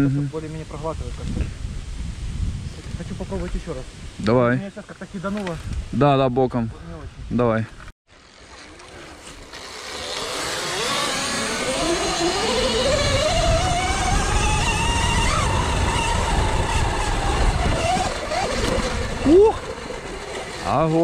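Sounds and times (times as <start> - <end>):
wind: 0.0 - 21.0
electric motor whine rising: 8.2 - 21.0
tyre noise: 8.7 - 21.0.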